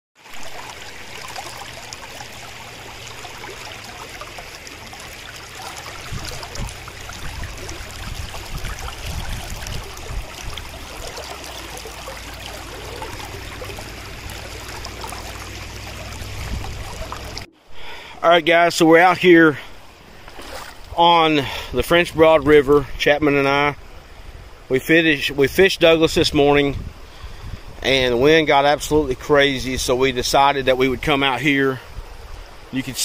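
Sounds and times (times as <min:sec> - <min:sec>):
river water rushing over rocks: 0:00.2 - 0:17.7, 0:19.7 - 0:22.2
low rumbles: 0:00.4 - 0:17.8.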